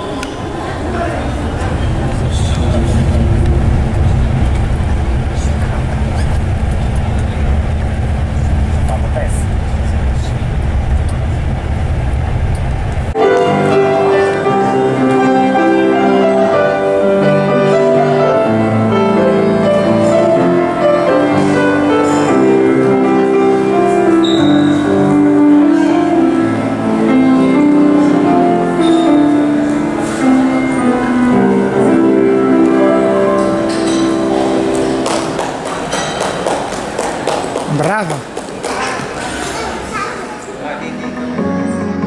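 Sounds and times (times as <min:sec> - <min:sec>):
vehicle engine and road rumble: 0:01.2 - 0:13.2.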